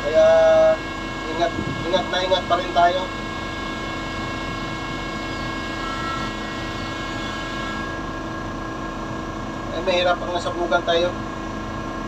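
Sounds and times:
brief higher whine: 0.0s - 9.0s
hydraulic crane droning and whining: 0.0s - 12.0s.

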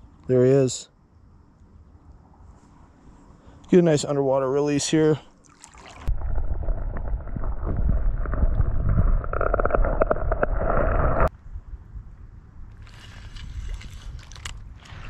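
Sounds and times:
underwater water sloshing and bubbling: 5.4s - 11.3s.

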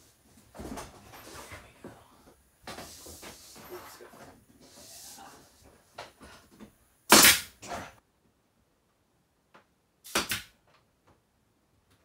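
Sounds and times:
faint air hiss: 0.0s - 8.0s
nail gun firing: 7.1s - 7.6s, 10.0s - 10.5s.

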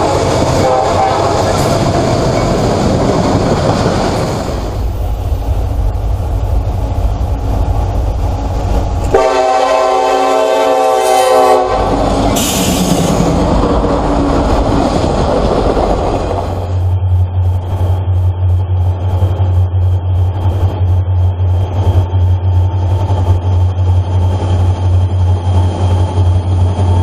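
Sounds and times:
locomotive horn blast: 0.0s - 1.8s, 9.1s - 13.0s
freight train rumbling past: 0.0s - 27.0s.

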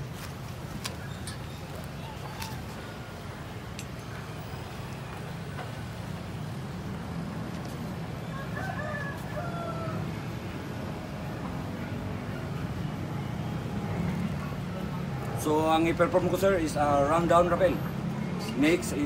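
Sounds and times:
rooster crowing: 8.2s - 10.3s.

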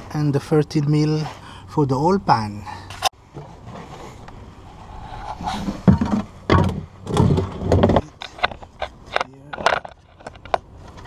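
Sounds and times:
dull bumps: 5.4s - 11.0s.

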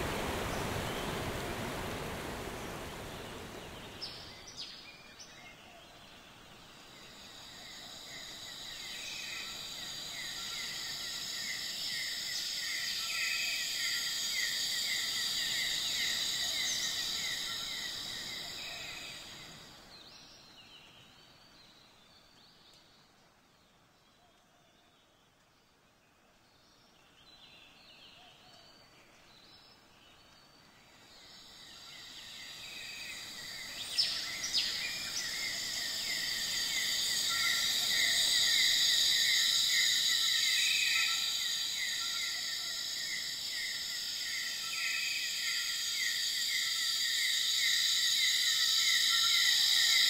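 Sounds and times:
rushing water: 0.0s - 4.6s
insect chirring: 31.2s - 50.0s.

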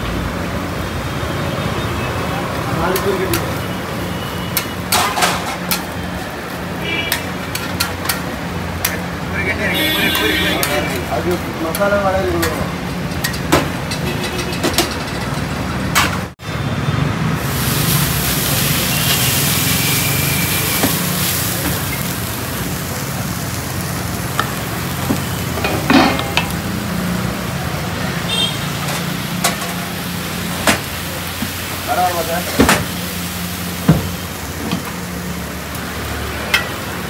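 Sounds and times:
hot griddle sizzling: 0.1s - 16.3s, 17.0s - 37.0s
utensils clinking: 25.6s - 26.6s.

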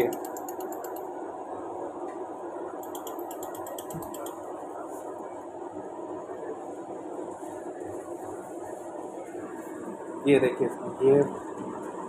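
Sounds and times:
laser machine rapid ticks: 0.0s - 1.1s, 2.8s - 4.4s.

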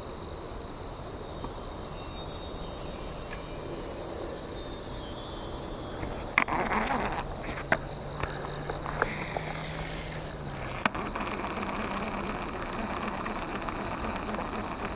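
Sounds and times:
shimmering bell-like chime: 0.3s - 7.4s.

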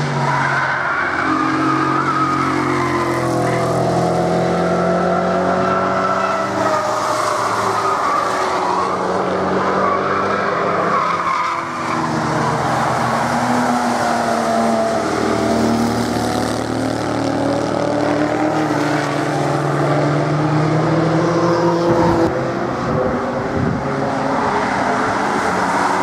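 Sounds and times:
cars revving past: 0.0s - 26.0s.

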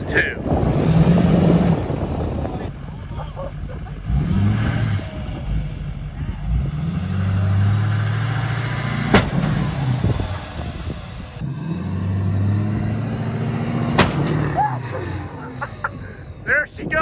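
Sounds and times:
diesel engine straining: 0.0s - 17.0s
sharp crack: 8.9s - 10.5s, 13.7s - 14.9s.

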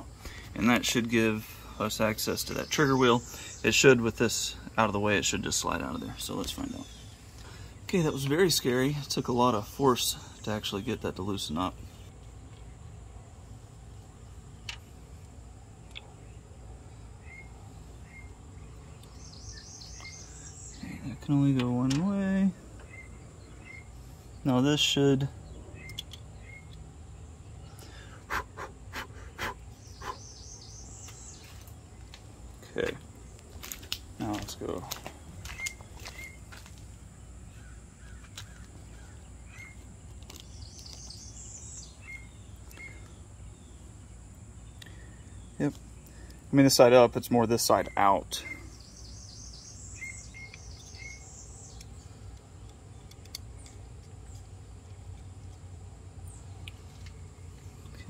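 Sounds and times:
birds chirping: 0.0s - 58.0s
steady low hum: 0.0s - 58.0s.

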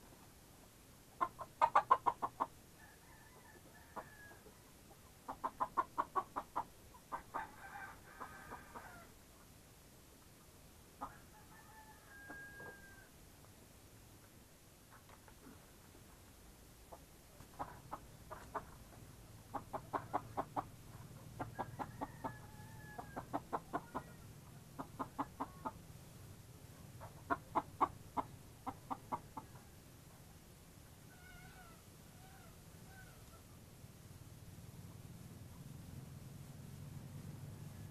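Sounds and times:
chickens clucking: 1.1s - 2.6s, 3.6s - 7.5s, 16.8s - 25.9s, 26.8s - 29.7s
drawn-out wavering chicken call: 11.0s - 13.1s, 21.4s - 24.2s, 31.1s - 33.5s.

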